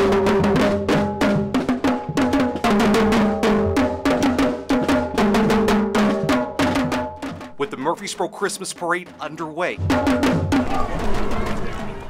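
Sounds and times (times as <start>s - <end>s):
marching band melody: 0.0s - 12.0s
bass drum: 8.8s - 11.9s.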